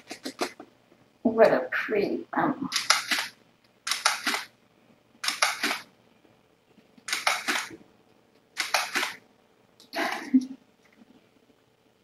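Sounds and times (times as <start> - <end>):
clusters of sharp clicks: 0.0 - 0.6, 2.7 - 4.5, 5.2 - 5.9, 7.0 - 9.2.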